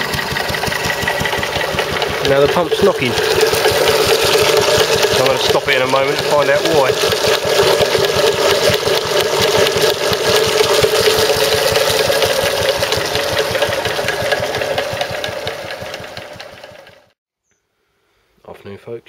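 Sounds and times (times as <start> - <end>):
water pump knocking: 0.0 - 17.1
stationary engine running: 0.0 - 17.2
water splashing: 0.7 - 14.6.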